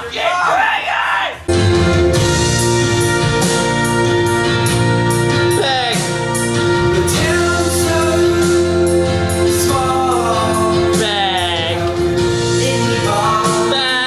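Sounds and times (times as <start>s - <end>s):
instrumental chords and beat: 1.5s - 14.0s
person singing: 5.5s - 6.3s, 6.9s - 14.0s.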